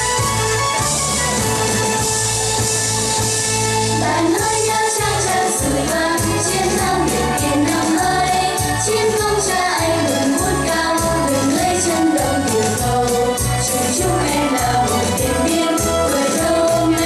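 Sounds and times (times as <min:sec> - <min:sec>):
drum beat with bass: 0:00.0 - 0:17.0
children singing: 0:04.0 - 0:17.0.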